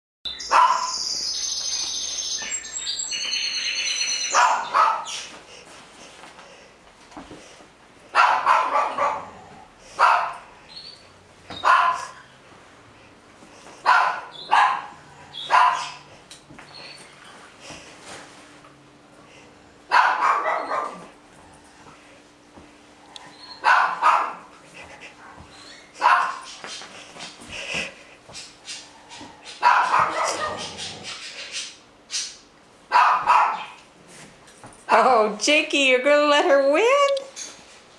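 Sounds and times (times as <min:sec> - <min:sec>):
dog barks: 0:00.5 - 0:01.0, 0:04.3 - 0:05.2, 0:08.1 - 0:09.4, 0:10.0 - 0:10.5, 0:11.6 - 0:12.2, 0:13.8 - 0:16.0, 0:19.9 - 0:21.1, 0:23.6 - 0:24.5, 0:26.0 - 0:26.5, 0:29.6 - 0:30.9, 0:32.9 - 0:33.8
dog whining: 0:20.2 - 0:21.1, 0:23.2 - 0:24.4, 0:28.7 - 0:32.3.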